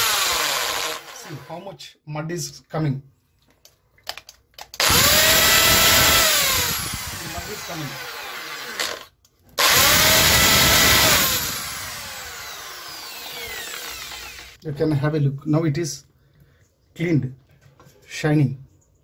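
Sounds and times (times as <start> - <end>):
electric drill spinning wire brush: 0.0 - 1.6, 4.8 - 14.6.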